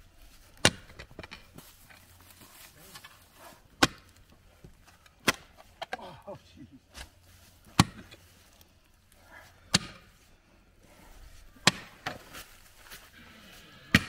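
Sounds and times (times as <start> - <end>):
pick axe striking rocky soil: 0.5 - 1.4, 3.8 - 4.2, 6.9 - 8.2, 9.7 - 10.1, 11.6 - 12.5.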